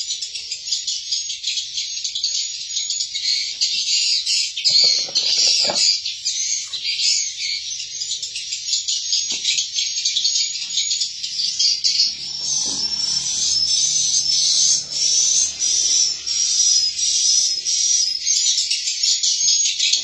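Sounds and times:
swiftlet calls twittering: 6.2 - 19.2.

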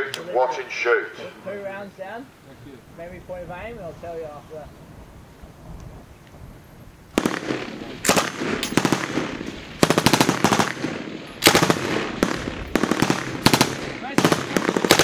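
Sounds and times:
gunfire echo: 7.1 - 15.0
machine gun bursts: 7.2 - 15.0.

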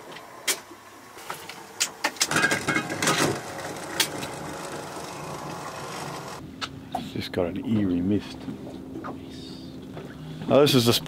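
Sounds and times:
wind: 6.4 - 11.0.

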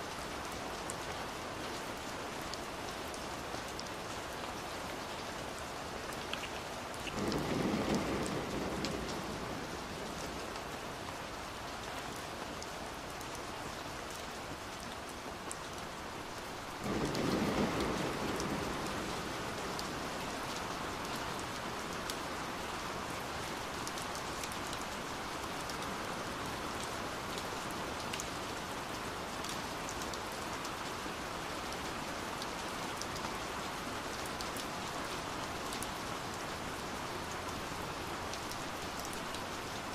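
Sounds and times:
heavy rain on a window: 0.0 - 39.9
thunder rumbling: 7.1 - 10.8, 16.8 - 21.1.

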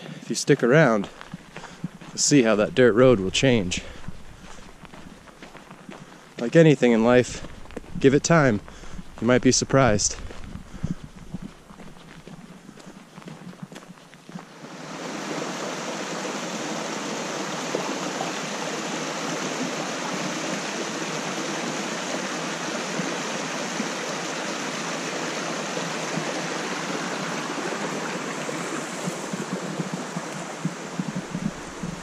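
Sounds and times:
stream water rushing: 14.4 - 32.0.

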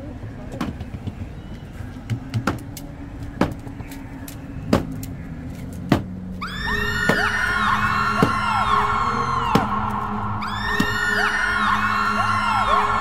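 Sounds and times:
low street hum: 0.0 - 13.0
scattered clicks and knocks: 0.5 - 6.1
sweeping whistling electronic glides: 6.4 - 13.0.

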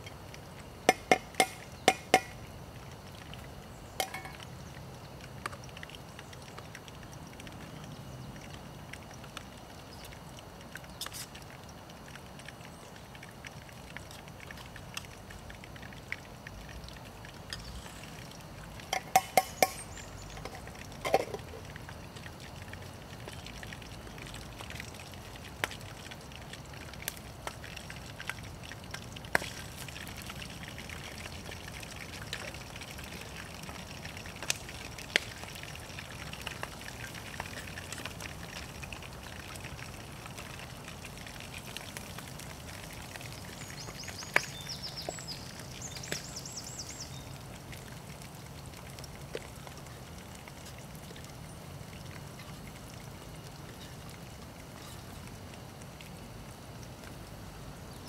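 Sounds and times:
steady low hiss: 0.0 - 58.0
water trickling and dripping: 0.0 - 58.0
small ticks: 0.9 - 47.2.

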